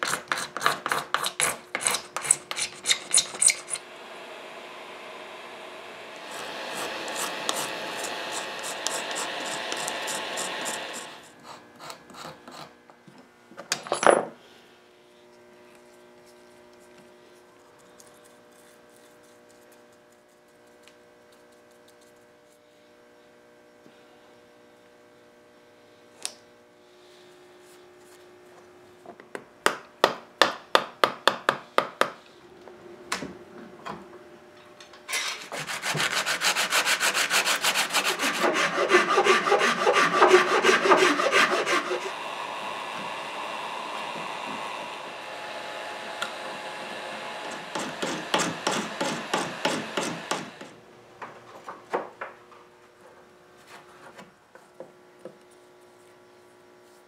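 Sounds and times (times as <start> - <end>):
file rasping on wood: 0.0 - 3.8, 6.3 - 12.8, 35.5 - 42.2, 47.4 - 50.6.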